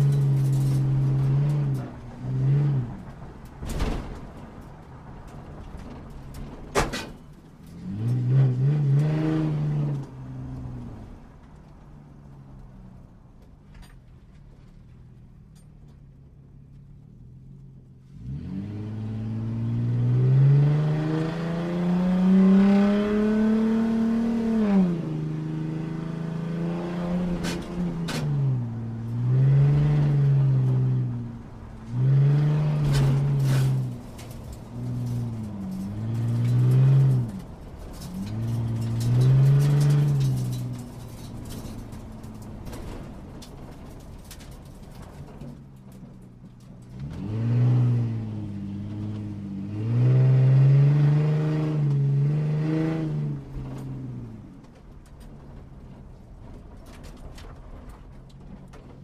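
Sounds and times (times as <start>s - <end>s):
sports car engine revving: 18.1s - 42.5s.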